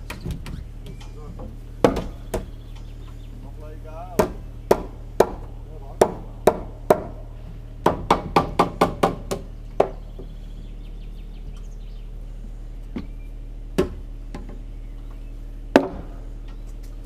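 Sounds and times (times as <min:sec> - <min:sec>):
steady low hum: 0:00.0 - 0:17.0
hammer knocking on timber: 0:01.8 - 0:02.5, 0:04.2 - 0:07.2, 0:07.8 - 0:10.3.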